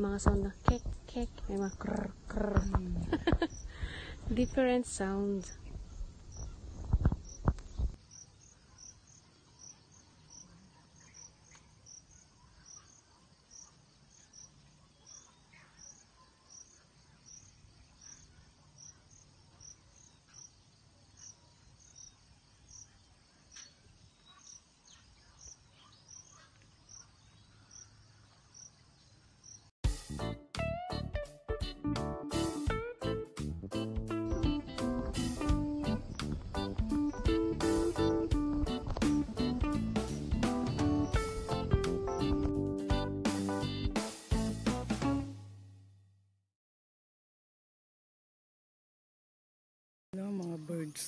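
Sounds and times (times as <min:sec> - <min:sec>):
insect chirping: 0:00.0 - 0:29.7
faint bird calls: 0:05.4 - 0:29.7
music: 0:29.8 - 0:45.8.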